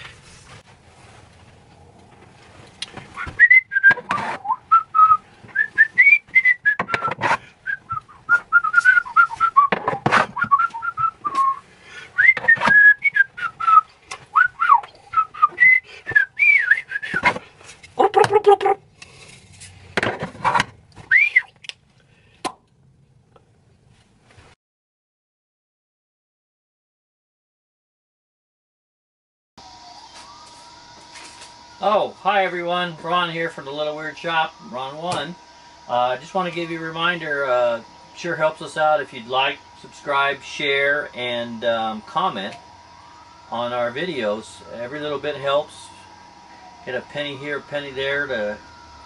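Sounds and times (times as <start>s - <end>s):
person whistling a tune: 3.2s - 9.8s, 10.4s - 11.6s, 12.2s - 17.3s, 21.1s - 21.5s.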